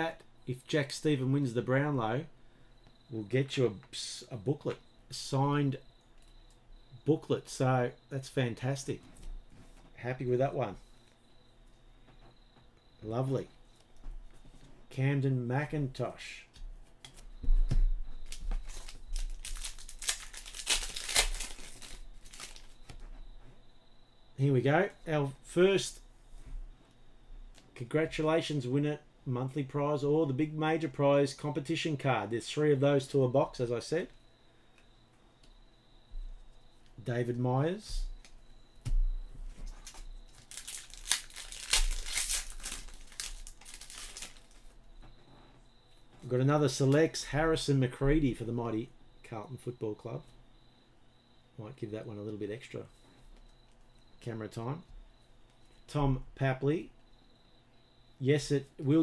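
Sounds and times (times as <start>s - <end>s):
wrapper tearing and crinkling: 18.2s - 22.8s, 39.8s - 44.7s
soft bump: 38.8s - 39.8s.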